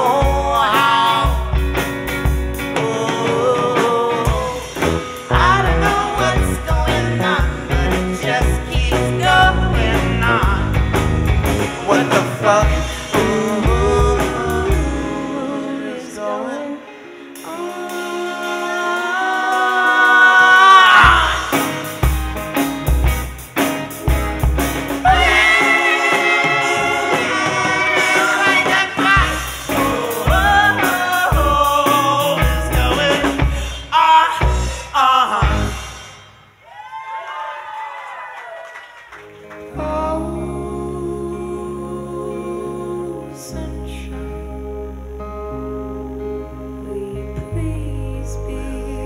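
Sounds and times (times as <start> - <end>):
live rock band playing: 0.0 - 36.6.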